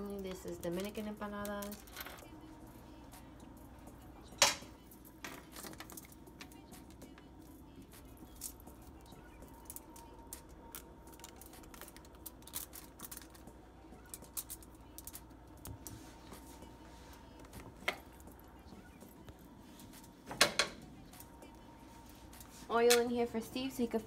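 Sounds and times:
aluminium foil crinkling: 0:08.0 - 0:16.5.

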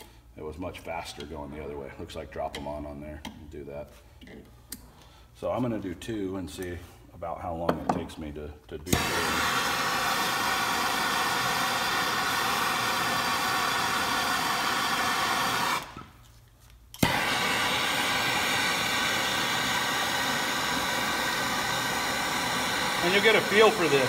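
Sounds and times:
gas torch hissing: 0:08.9 - 0:16.2, 0:17.0 - 0:24.0.

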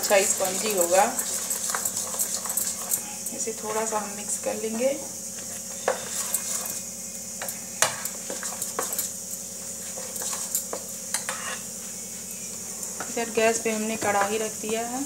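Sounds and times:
batter stirred in steel bowl: 0:00.0 - 0:15.0
low hum and hiss: 0:02.8 - 0:15.0.

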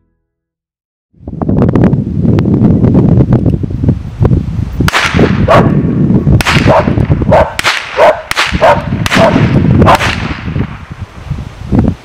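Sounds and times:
dog barking: 0:05.5 - 0:05.8, 0:06.7 - 0:10.0
handgun shots: 0:06.4 - 0:06.9, 0:07.5 - 0:10.4.

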